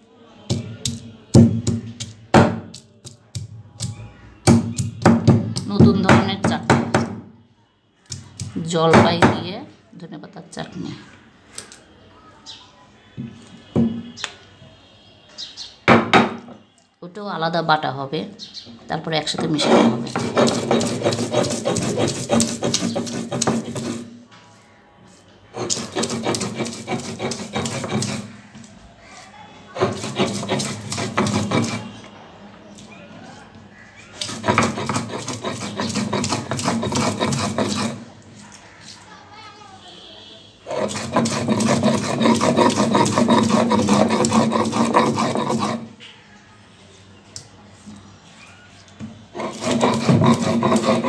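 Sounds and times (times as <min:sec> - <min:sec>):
stone roller scraping on stone slab: 0:19.3 - 0:24.2, 0:25.5 - 0:28.4, 0:29.7 - 0:32.0, 0:34.2 - 0:38.1, 0:40.7 - 0:46.0, 0:49.3 - 0:51.0.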